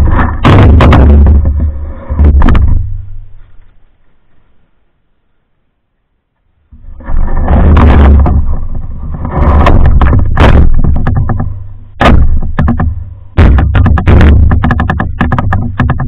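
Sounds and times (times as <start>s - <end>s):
canoe bumping and scraping: 0.0s - 4.8s, 6.7s - 16.0s.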